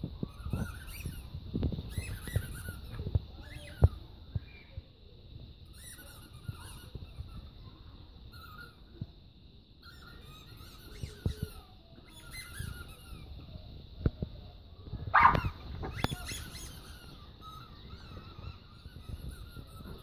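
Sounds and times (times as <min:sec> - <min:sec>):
squeaky dog toy squeaks: 0:00.3 - 0:01.3, 0:01.9 - 0:03.8, 0:05.7 - 0:07.3, 0:09.8 - 0:13.3, 0:15.2 - 0:20.0.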